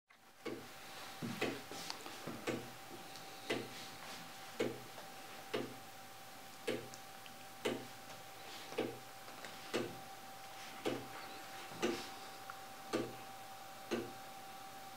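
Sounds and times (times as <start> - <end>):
wooden clock ticking: 0.4 - 0.6, 2.4 - 2.7, 3.5 - 3.7, 5.5 - 5.8, 6.7 - 6.9, 7.6 - 7.9, 9.7 - 10.0, 12.9 - 13.2, 13.9 - 14.2.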